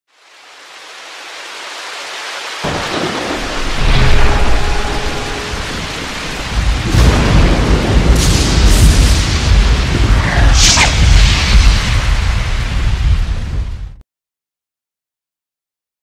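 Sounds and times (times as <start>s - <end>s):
rain hissing: 0.1s - 14.0s
rolling thunder rumble: 2.6s - 14.0s
sharp thunder cracks: 2.6s - 14.0s.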